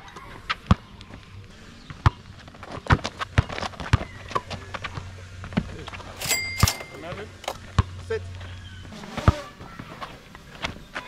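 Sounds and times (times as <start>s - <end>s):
players' footsteps: 0.3s - 11.0s
basketball bouncing on a court: 0.6s - 1.0s, 7.0s - 8.1s.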